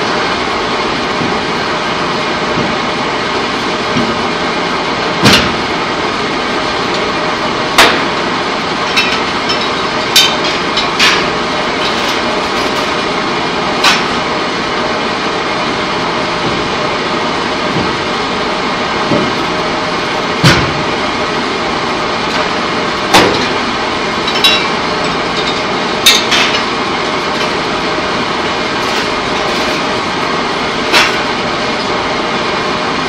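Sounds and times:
steady machinery noise: 0.0s - 33.0s
sharp metallic clanks: 8.8s - 13.1s, 24.2s - 31.8s.

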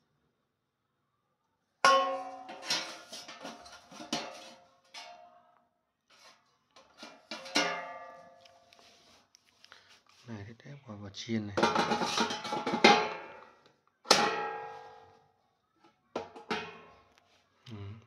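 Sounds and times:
metal pan and basket clanking: 1.8s - 5.2s, 6.8s - 8.4s, 11.6s - 13.5s, 14.1s - 15.1s, 16.2s - 17.0s.

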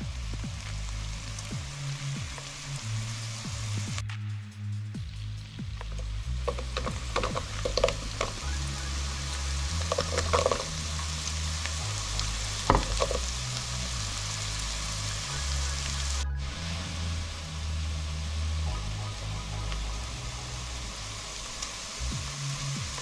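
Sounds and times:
onions sizzling in oil: 0.0s - 4.0s, 5.1s - 23.0s
carrots clattering into pan: 6.0s - 8.5s, 9.7s - 11.2s, 12.5s - 13.4s.

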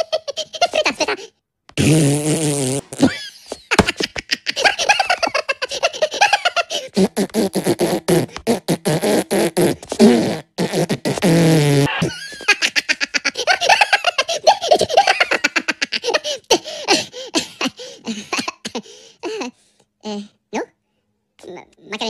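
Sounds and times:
cartoon voices giggling: 0.0s - 1.3s, 2.9s - 7.0s, 11.9s - 18.3s
buzzing fart-like noise: 1.7s - 3.2s, 6.9s - 12.1s.

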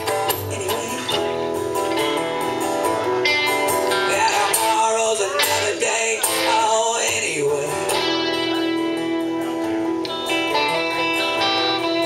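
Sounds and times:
man singing: 0.0s - 1.6s, 3.9s - 9.3s
acoustic and electric guitars: 0.0s - 12.0s.

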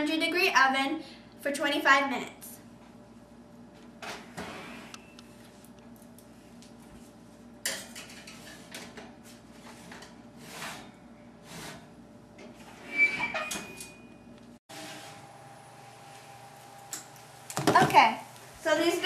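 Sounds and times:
metal baking sheet scraping: 7.8s - 12.0s, 12.6s - 14.0s
oven door opening: 12.5s - 14.0s.

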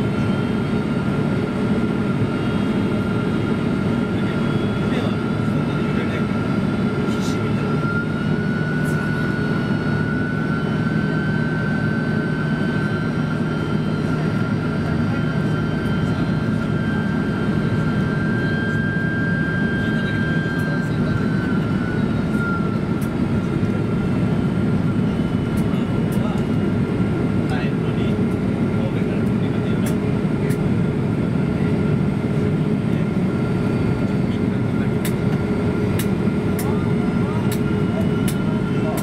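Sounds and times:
jet engines and airflow roar: 0.0s - 39.0s.

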